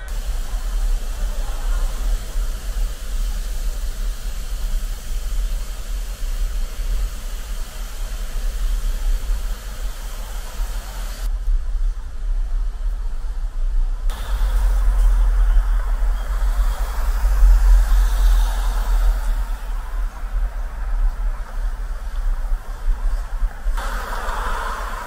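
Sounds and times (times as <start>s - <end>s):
even hiss: 0.0s - 25.0s
road traffic rumble: 0.0s - 25.0s.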